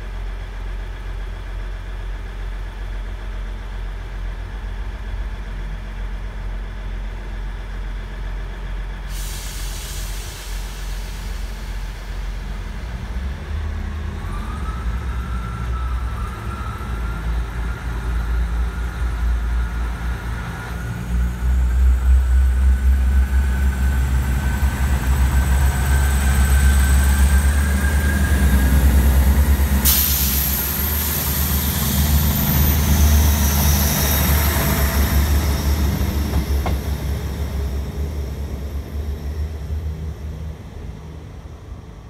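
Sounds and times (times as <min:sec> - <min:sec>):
diesel train engine throbbing: 0:00.0 - 0:42.0
high hiss: 0:29.6 - 0:36.0.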